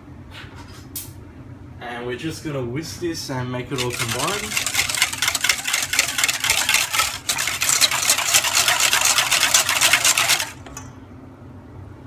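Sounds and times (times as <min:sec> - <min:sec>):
whisk beating in a metal bowl: 0:03.8 - 0:10.8.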